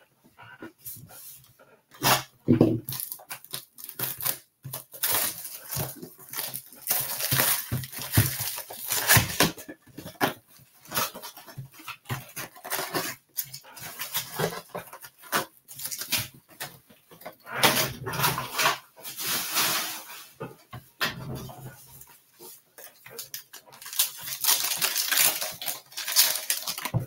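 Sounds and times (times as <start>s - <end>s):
plastic shrink-wrap crinkling and tearing: 2.0s - 20.4s, 22.8s - 27.0s.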